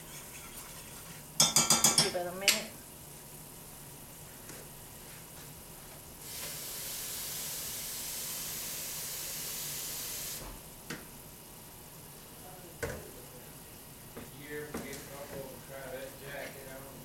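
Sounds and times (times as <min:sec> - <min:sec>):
steady hiss: 0:06.2 - 0:10.6.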